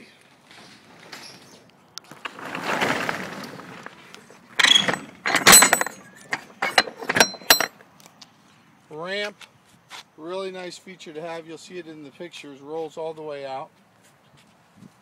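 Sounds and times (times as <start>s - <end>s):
metal clanking: 2.6s - 7.8s.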